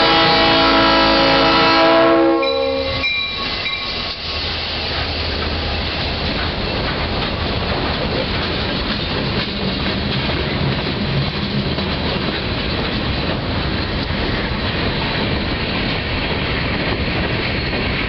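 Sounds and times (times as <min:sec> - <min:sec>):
locomotive air horn chord: 0:00.0 - 0:03.8
train rumbling past: 0:00.0 - 0:18.0
wheels clacking over rails: 0:02.5 - 0:18.0.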